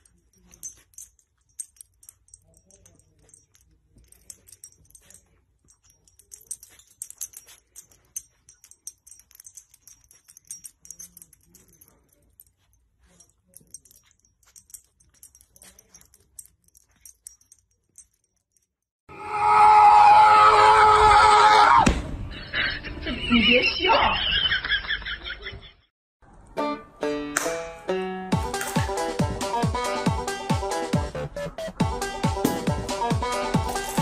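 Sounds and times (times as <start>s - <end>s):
light jingling: 0.0s - 18.9s, 32.7s - 34.0s.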